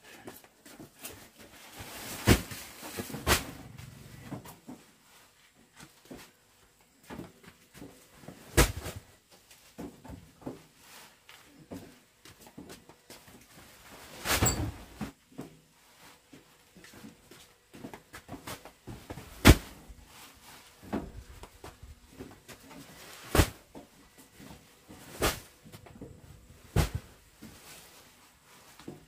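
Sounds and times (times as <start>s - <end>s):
heavy sacks thumping down: 1.8s - 3.7s, 19.0s - 19.8s, 23.1s - 23.6s, 25.0s - 25.5s, 26.6s - 27.6s
knocks and scuffing: 16.3s - 29.0s.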